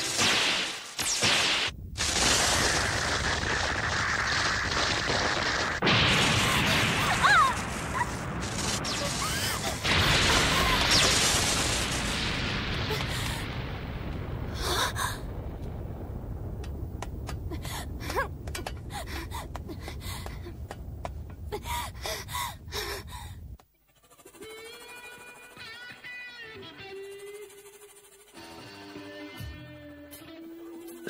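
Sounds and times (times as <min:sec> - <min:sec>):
explosion blasts: 0:00.0 - 0:21.5
explosion rumble: 0:00.6 - 0:23.6.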